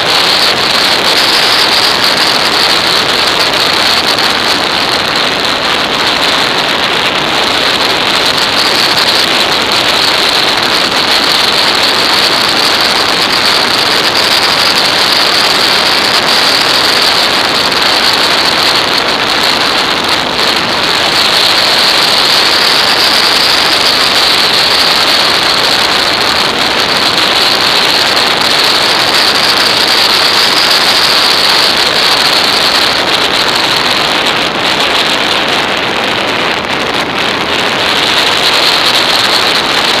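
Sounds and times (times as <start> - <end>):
road noise: 0.0 - 40.0
rushing wind on microphone: 0.0 - 40.0.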